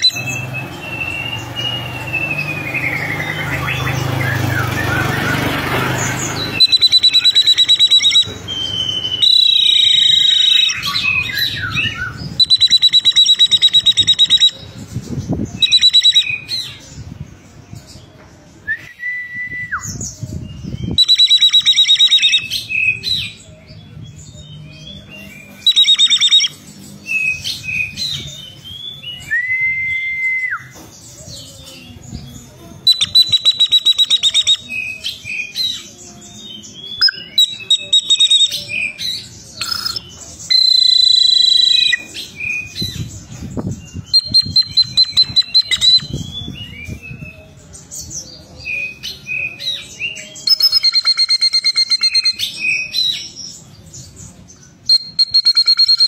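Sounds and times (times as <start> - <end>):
bird whistles: 0.0 - 14.6, 15.6 - 16.7, 20.8 - 23.3, 25.4 - 30.8, 32.8 - 35.8, 36.9 - 43.1, 44.0 - 47.4, 48.9 - 53.3, 54.8 - 56.0
bird singing trills: 0.0 - 18.9, 19.8 - 29.5, 30.3 - 56.0.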